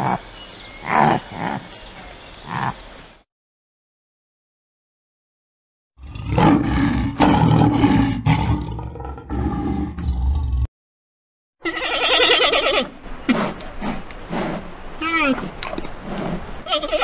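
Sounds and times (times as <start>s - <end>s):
lion roaring: 6.0s - 10.7s.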